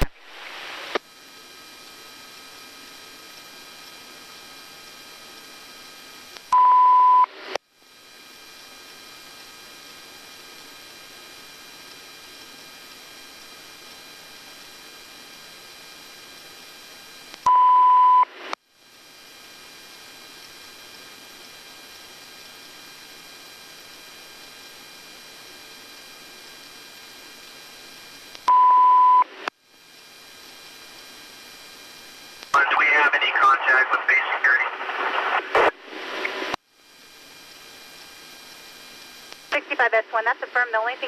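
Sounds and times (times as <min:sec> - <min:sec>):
radio audio hiss: 0:00.0 - 0:18.6, 0:19.3 - 0:41.0
loud single-pitch beep: 0:06.6 - 0:07.3, 0:17.5 - 0:18.2, 0:28.5 - 0:29.3
click: 0:28.3 - 0:28.5.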